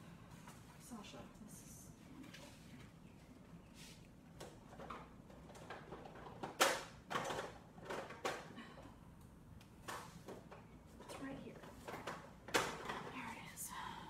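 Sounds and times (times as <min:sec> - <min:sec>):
objects knocking and clattering: 0:04.4 - 0:09.0, 0:09.8 - 0:13.2.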